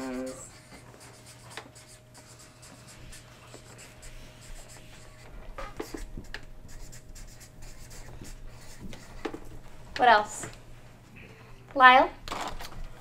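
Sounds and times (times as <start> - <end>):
marker scratching on paper: 0.0 - 9.5.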